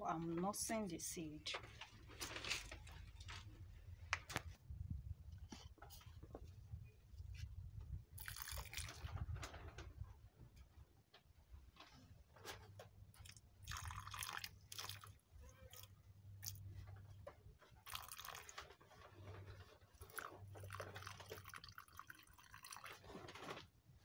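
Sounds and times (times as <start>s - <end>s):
water trickling into soil: 8.1s - 9.8s, 13.1s - 17.0s, 17.7s - 23.7s.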